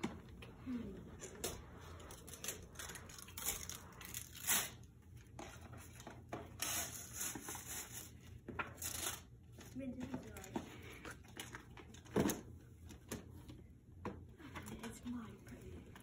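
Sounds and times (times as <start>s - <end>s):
wrapping paper rustling: 1.8s - 12.1s.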